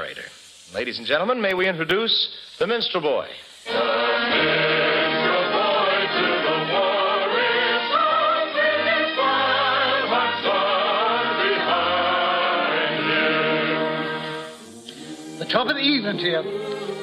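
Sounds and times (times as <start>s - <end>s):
choir singing with orchestra: 3.6s - 17.0s.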